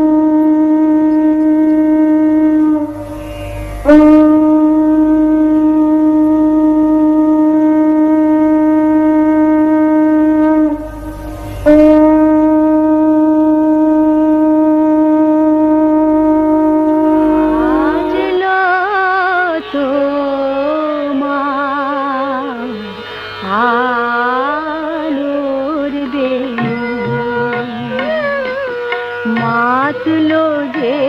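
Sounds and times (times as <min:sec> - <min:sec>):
conch shell blasts: 0:00.0 - 0:19.2.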